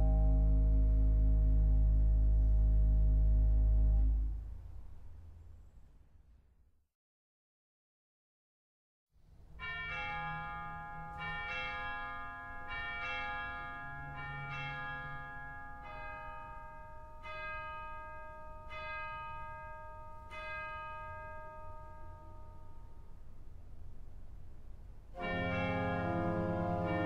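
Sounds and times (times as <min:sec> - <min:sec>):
ringing bell chimes: 0:09.6 - 0:23.3, 0:25.2 - 0:27.0.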